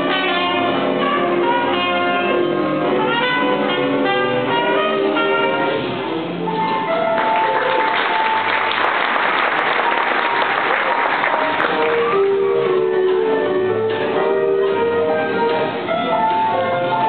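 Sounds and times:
school band playing: 0.0s - 17.0s
audience applauding: 7.0s - 12.4s.

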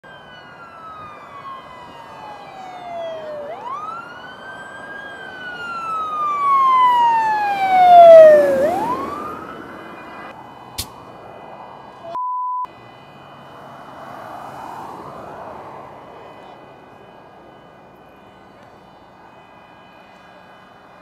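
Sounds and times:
fire engine siren wailing: 0.0s - 21.0s.

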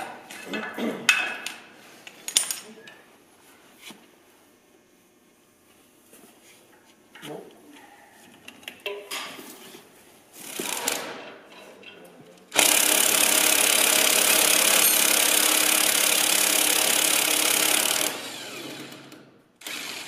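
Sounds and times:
impact wrench hammering: 12.6s - 18.2s.

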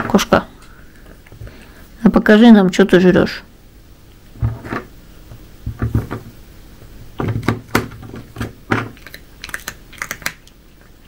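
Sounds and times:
cat chewing crunchy bread: 8.9s - 10.6s.

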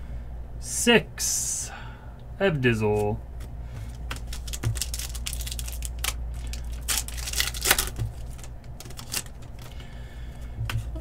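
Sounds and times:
steady low hum: 0.0s - 11.0s
foil wrapper crinkling and tearing: 4.1s - 9.8s.

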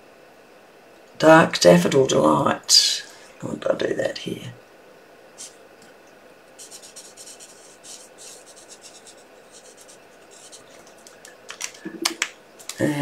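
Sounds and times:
marker scratching on card: 6.6s - 11.2s.

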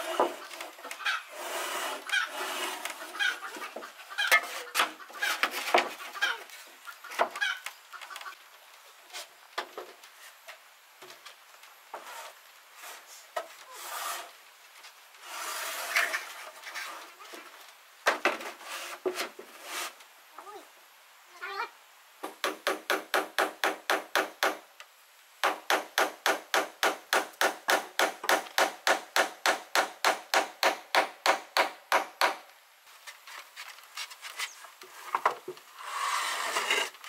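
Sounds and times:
chickens clucking: 0.0s - 8.4s
scraping: 33.0s - 37.0s.

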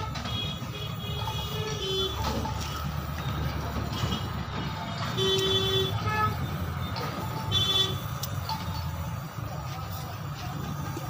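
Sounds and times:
vehicle horn honking: 0.0s - 2.4s, 5.1s - 6.4s, 7.4s - 8.1s
low traffic rumble: 0.0s - 11.0s.

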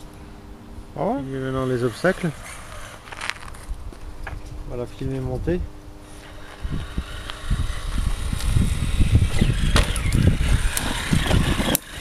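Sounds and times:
electric motor whirring: 1.0s - 3.8s, 6.0s - 12.0s.

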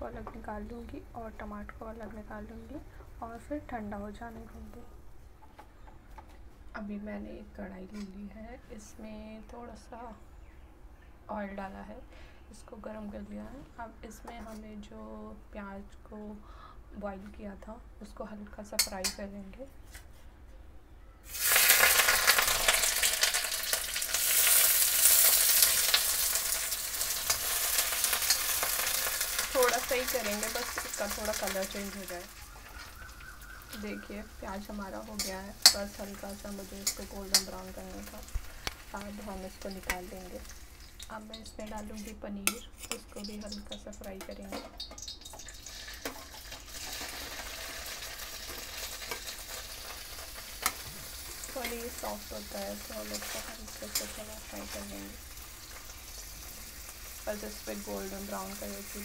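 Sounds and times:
onions frying in hot oil: 21.3s - 41.9s, 43.2s - 59.0s
spatula scraping a pan: 41.7s - 43.3s.

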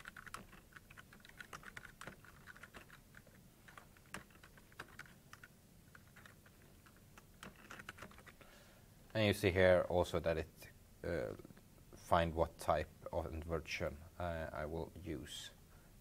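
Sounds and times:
faint keyboard typing: 0.0s - 8.5s.

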